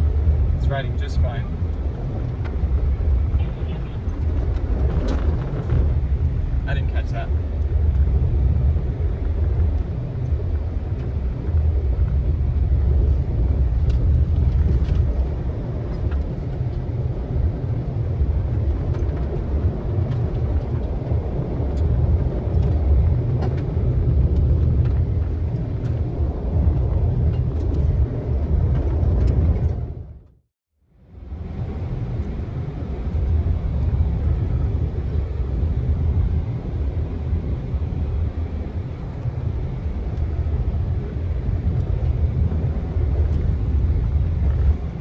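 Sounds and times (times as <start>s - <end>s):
car driving over gravel: 2.0s - 6.4s.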